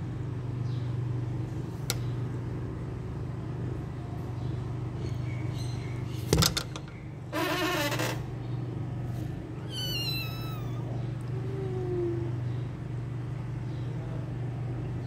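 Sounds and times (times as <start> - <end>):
steady low hum: 0.0 - 15.0
kitten mewing: 9.6 - 12.4.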